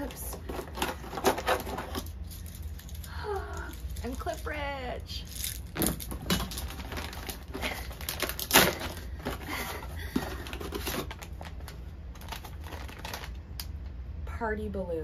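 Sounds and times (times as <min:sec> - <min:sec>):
paper rustling and crinkling: 0:00.0 - 0:03.1, 0:05.3 - 0:13.4.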